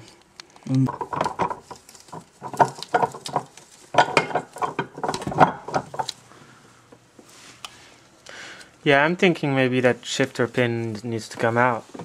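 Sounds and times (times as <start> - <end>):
metal gears clinking and knocking: 0.9 - 6.1.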